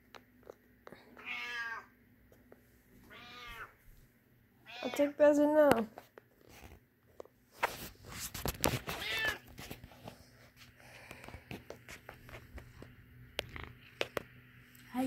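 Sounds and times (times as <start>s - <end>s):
cat meowing: 1.2s - 1.9s, 3.1s - 3.8s, 9.0s - 9.4s.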